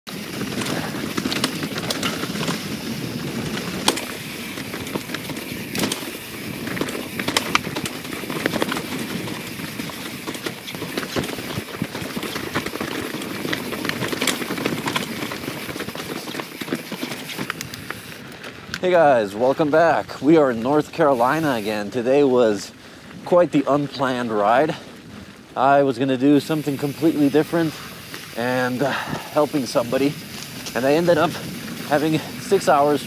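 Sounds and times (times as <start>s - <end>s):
bike tyre and trail noise: 0.0s - 33.0s
chain and frame rattling: 0.3s - 17.6s.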